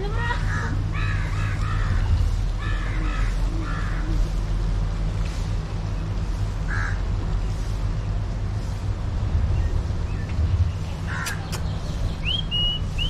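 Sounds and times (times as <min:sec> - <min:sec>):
steady low rumble: 0:00.0 - 0:13.0
crow cawing: 0:00.4 - 0:04.2, 0:06.7 - 0:07.0.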